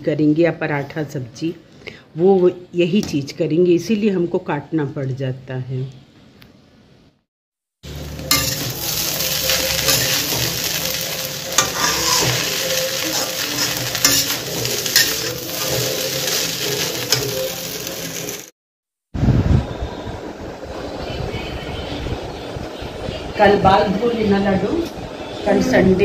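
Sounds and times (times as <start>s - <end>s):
food sizzling in a pan: 7.8s - 18.5s
metal spatula scraping a pan: 8.2s - 18.4s.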